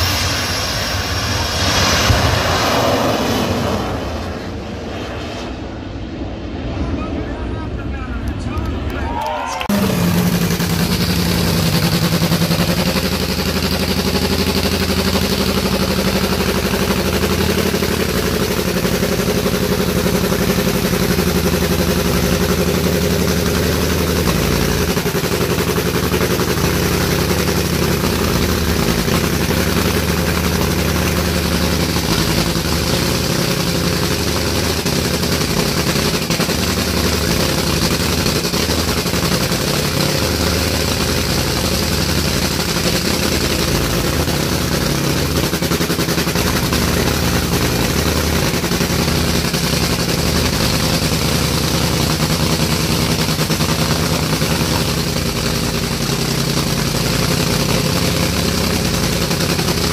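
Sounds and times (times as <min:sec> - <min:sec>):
loud engine idling: 0:00.0 - 0:05.0, 0:06.6 - 0:59.9.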